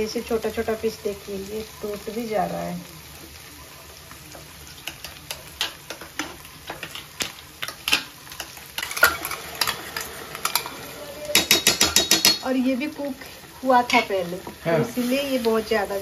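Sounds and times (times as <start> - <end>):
chicken sizzling in frying pan: 0.0 - 16.0
spatula scraping and clinking on pan: 4.7 - 12.5.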